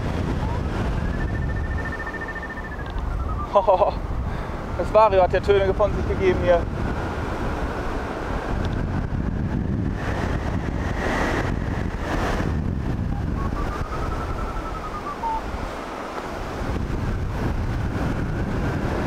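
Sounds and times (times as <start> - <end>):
wind rushing over microphone: 0.0 - 19.0
variometer tone and beeps: 1.0 - 3.6.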